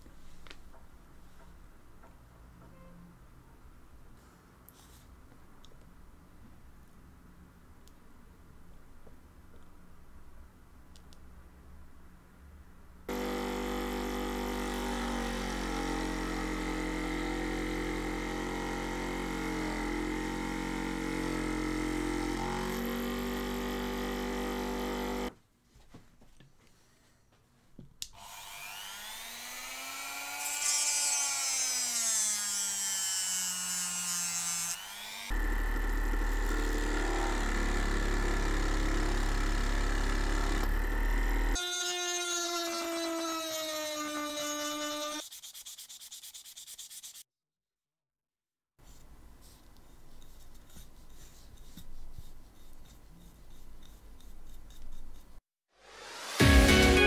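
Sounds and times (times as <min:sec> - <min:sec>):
scroll saw cutting wood: 0:13.1 - 0:25.3, 0:28.2 - 0:45.4
rotary tool whining: 0:28.2 - 0:45.2.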